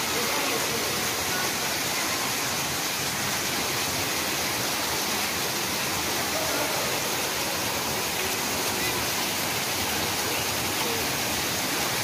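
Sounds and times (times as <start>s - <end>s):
fountain water splashing into pool: 0.0s - 12.0s.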